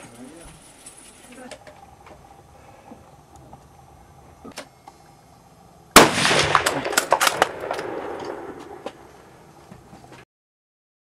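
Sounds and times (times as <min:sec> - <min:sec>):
rifle shot: 0:06.0 - 0:09.4.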